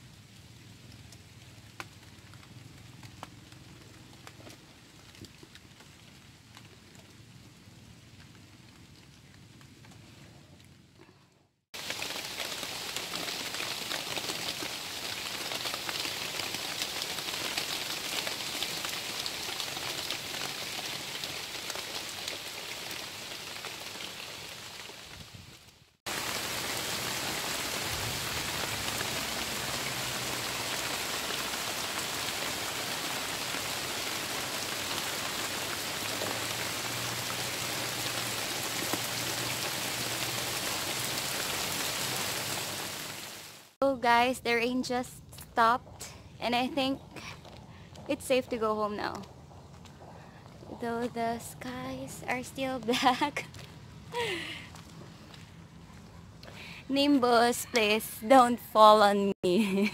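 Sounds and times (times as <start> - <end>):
heavy rain on paving and trees: 0.0 - 10.0, 11.8 - 43.8, 51.7 - 55.4.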